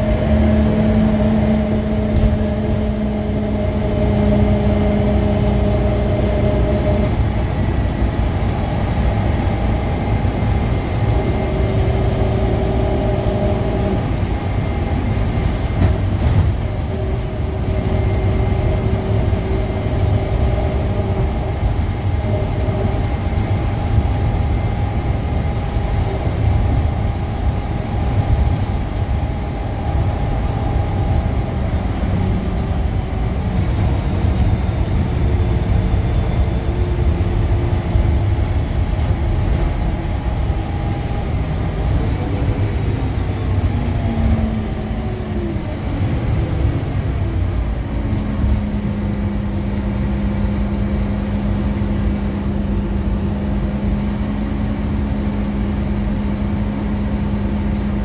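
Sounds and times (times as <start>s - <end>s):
bus engine and road rumble: 0.0s - 58.0s
whining tones: 0.0s - 58.0s.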